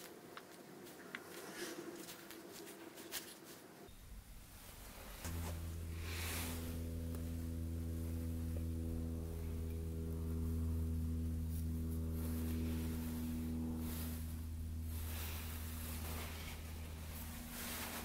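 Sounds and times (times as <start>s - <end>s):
droning background music: 3.9s - 18.0s.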